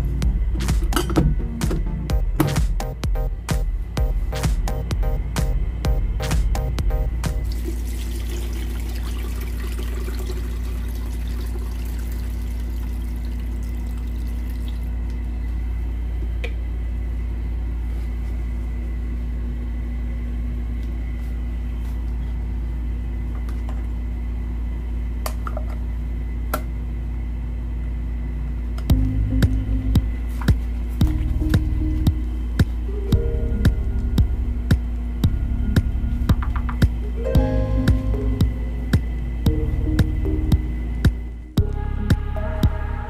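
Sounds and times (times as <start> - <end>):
low even hum: 0.0 - 43.0
running water: 7.4 - 15.0.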